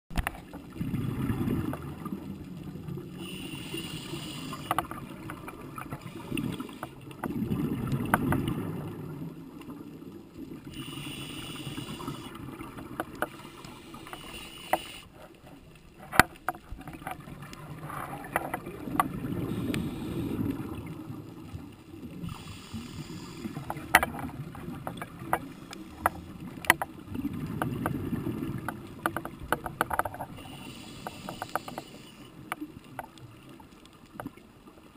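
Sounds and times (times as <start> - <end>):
exhale bubbling rumble: 0.6 - 3.4, 7.2 - 9.5
regulator inhale hiss: 3.2 - 4.8, 10.7 - 12.4, 13.3 - 15.1, 19.4 - 20.6, 22.2 - 23.9, 25.4 - 26.4, 30.4 - 32.4.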